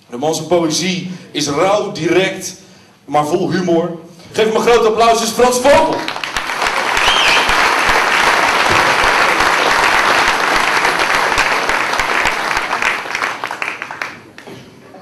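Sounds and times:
audience applauding: 5.8s - 14.5s.

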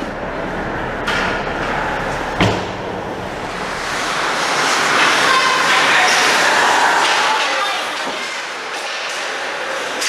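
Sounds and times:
arena noise: 0.0s - 10.0s.

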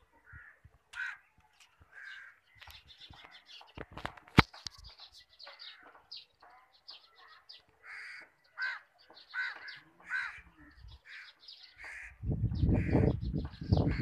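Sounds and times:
crows cawing: 0.3s - 1.3s, 1.9s - 2.5s, 7.8s - 13.2s.

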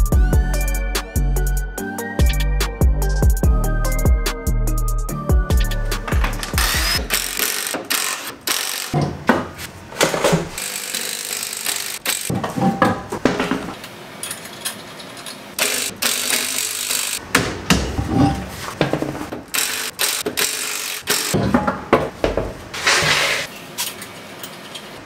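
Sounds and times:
tools and metal parts clunking: 6.0s - 25.0s.

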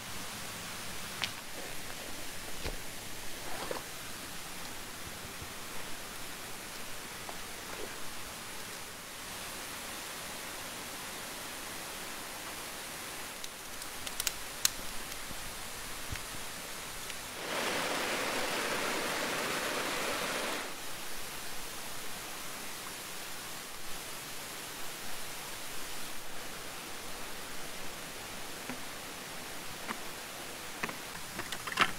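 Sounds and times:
creek flowing over rocks: 15.3s - 31.9s.

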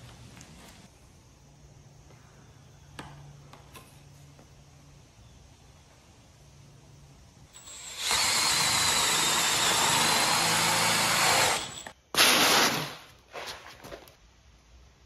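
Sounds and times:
cordless drill cutting plastic: 7.6s - 11.9s.

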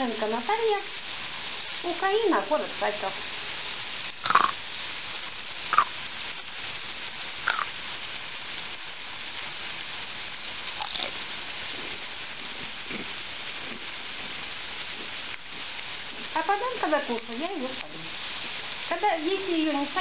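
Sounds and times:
potatoes sizzling in oil: 0.0s - 20.0s
oil popping: 10.6s - 20.0s.

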